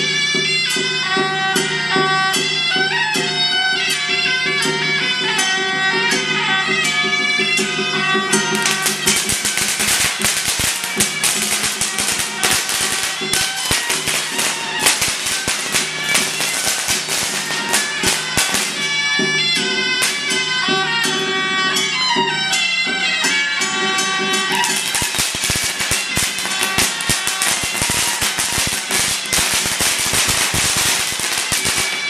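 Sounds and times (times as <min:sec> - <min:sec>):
shrill reed horn melody: 0:04.6 - 0:32.0
dense percussion strikes: 0:07.6 - 0:21.7.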